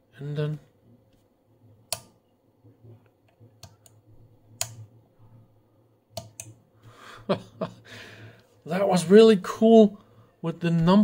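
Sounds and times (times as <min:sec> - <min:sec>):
faint low hum: 0:00.0 - 0:11.0
toggle switch clicks: 0:01.9 - 0:02.2, 0:04.6 - 0:04.8, 0:06.2 - 0:06.6.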